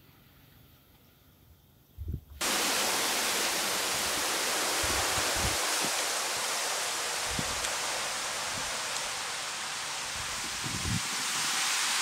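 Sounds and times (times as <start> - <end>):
loud rushing hiss: 2.4 - 12.0.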